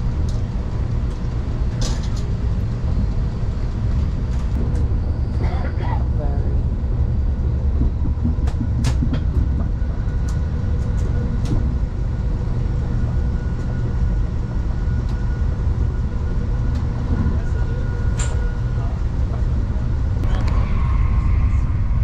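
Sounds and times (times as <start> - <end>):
train interior rumble: 0.0 - 22.0.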